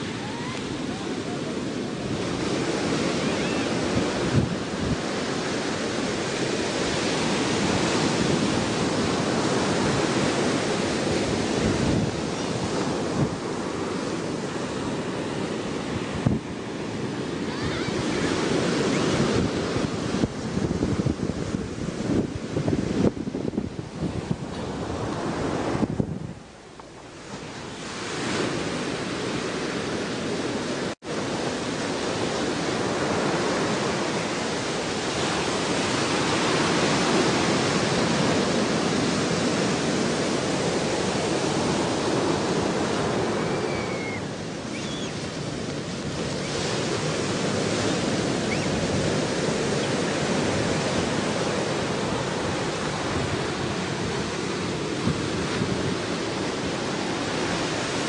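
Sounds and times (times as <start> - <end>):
ocean surf rushing: 0.0 - 58.0
wind: 0.0 - 58.0.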